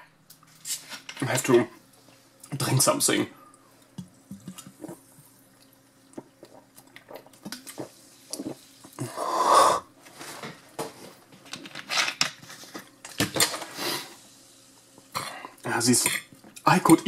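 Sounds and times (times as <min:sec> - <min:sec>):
man drinking and chewing: 0:03.4 - 0:09.6.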